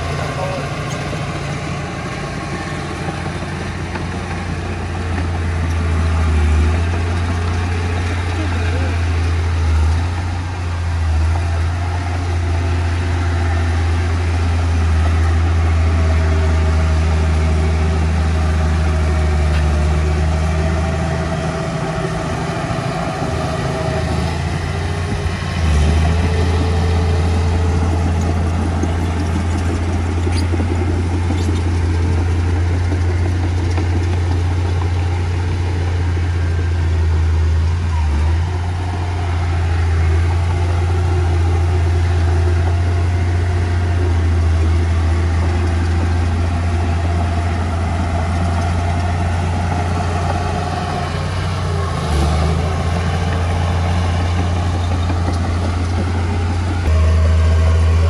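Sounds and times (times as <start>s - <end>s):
diesel engine droning: 0.0s - 58.0s.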